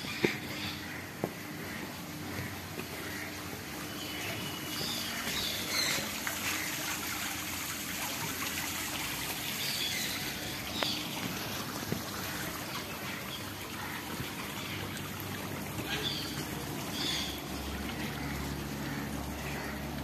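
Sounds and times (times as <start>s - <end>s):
fountain water trickling: 0.0s - 20.0s.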